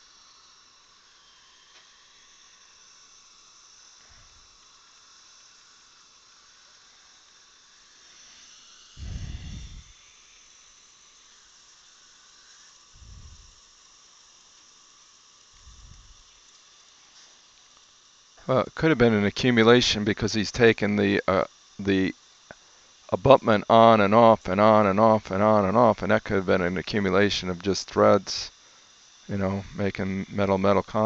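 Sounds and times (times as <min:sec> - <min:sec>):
dull low thumps: 0:09.0 - 0:09.9.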